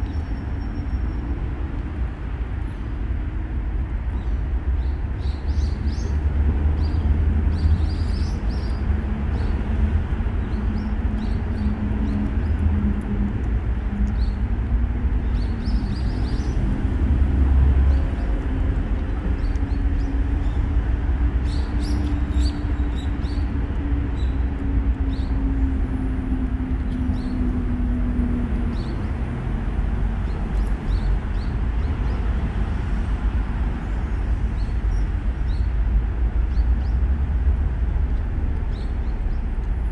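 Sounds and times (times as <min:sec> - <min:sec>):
faint engine hum: 0:00.0 - 0:39.9
low rumble of road traffic: 0:00.0 - 0:39.9
light high ticks: 0:12.0 - 0:14.4.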